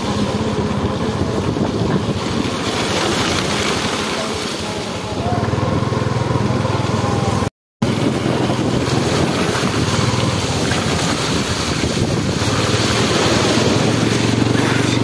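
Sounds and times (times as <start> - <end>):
wind noise on microphone: 0.0 - 4.1, 7.3 - 15.0
small motorbike engine running: 5.2 - 15.0.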